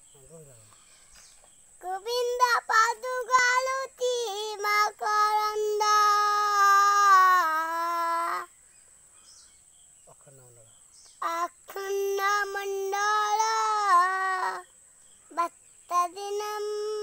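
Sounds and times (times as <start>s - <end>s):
child singing unaccompanied: 1.8s - 8.6s, 11.2s - 17.0s.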